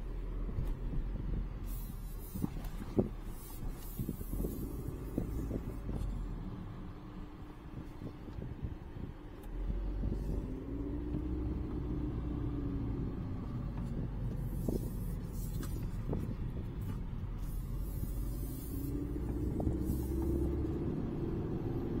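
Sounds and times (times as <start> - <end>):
car engine and tyre rumble: 0.0 - 22.0
hiss: 17.4 - 20.7.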